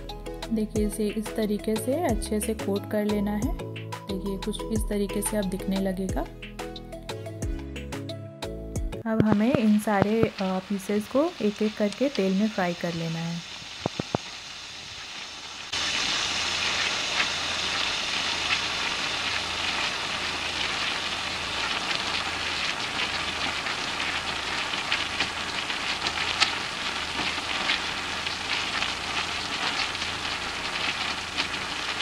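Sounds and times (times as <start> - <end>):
vegetables frying in hot oil: 9.1 - 32.0.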